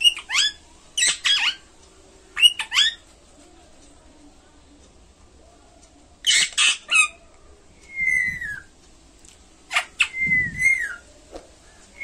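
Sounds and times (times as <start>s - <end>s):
parrot chick squawking: 0.0s - 1.6s, 2.4s - 3.1s, 6.3s - 7.2s, 7.9s - 8.7s, 9.7s - 11.1s.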